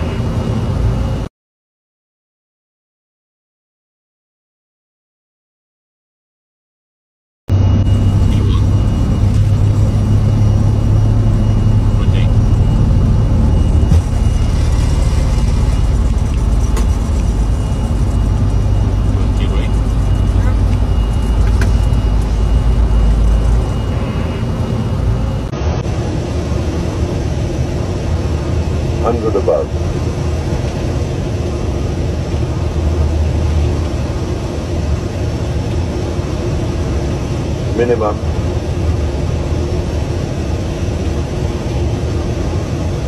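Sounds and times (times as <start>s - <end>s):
jet engines roaring: 0.0s - 1.3s, 7.5s - 43.0s.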